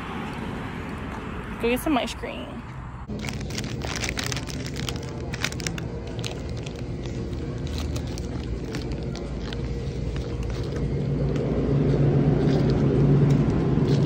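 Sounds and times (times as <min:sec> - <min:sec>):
store hum: 0:00.0 - 0:14.0
plastic wrapper crinkling: 0:03.1 - 0:11.4.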